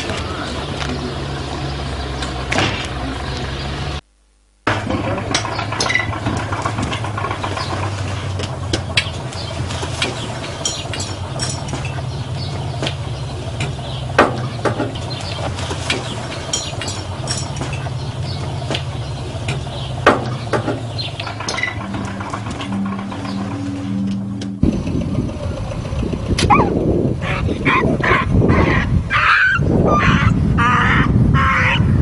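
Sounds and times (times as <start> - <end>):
engine idling: 0.0 - 4.0, 4.7 - 29.1
sharp clanks and knocks: 2.1 - 3.5, 4.7 - 25.1.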